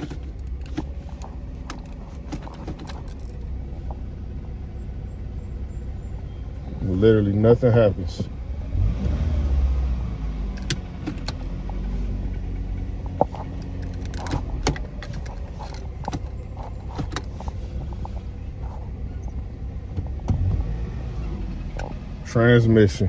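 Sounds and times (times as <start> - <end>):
gear selector clicks and clunks: 0.0 - 4.1, 10.4 - 20.7, 21.3 - 22.4
car engine idling: 0.0 - 23.0.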